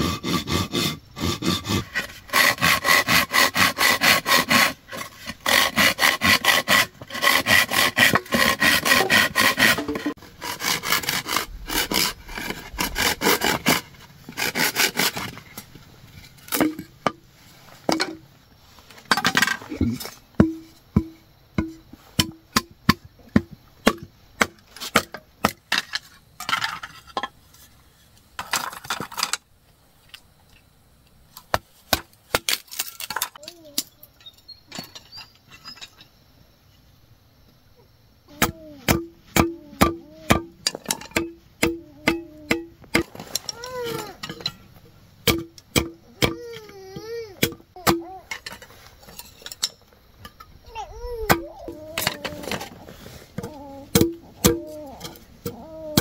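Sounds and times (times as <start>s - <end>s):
rustling: 9.0s - 20.8s, 48.0s - 56.0s
sharp ringing knocks: 20.4s - 23.1s
young child crying: 43.5s - 44.2s, 46.2s - 48.4s, 50.6s - 52.5s, 53.4s - 56.0s.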